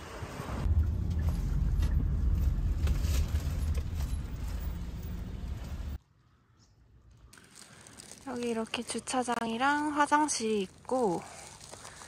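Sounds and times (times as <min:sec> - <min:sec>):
road and engine rumble: 0:00.0 - 0:06.2, 0:06.8 - 0:12.0.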